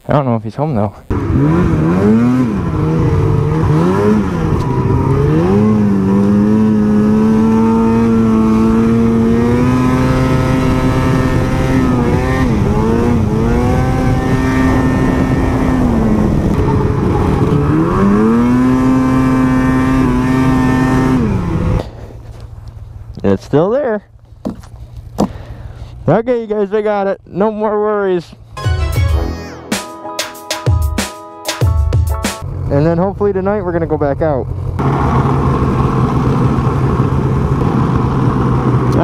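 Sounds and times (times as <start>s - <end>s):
snowmobile engine revving: 1.1s - 21.9s.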